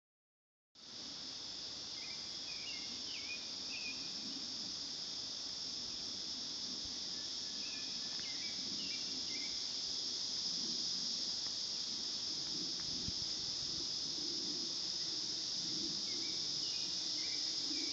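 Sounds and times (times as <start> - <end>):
high-pitched insect chorus: 0.8 - 17.9.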